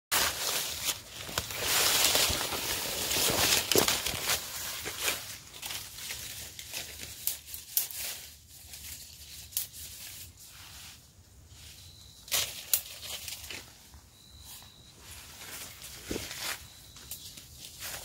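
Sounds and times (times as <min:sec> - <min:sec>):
dry leaves crackling: 0:00.1 - 0:11.0, 0:11.6 - 0:18.0
clothing rustling: 0:00.2 - 0:07.1.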